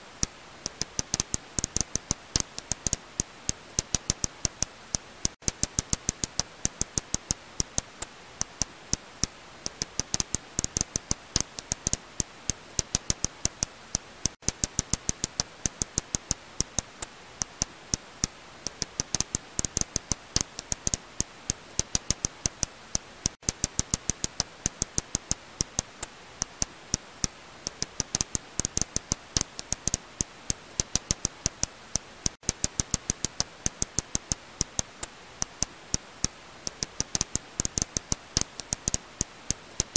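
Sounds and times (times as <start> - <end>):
bat echolocation clicks: 0.2 - 39.9.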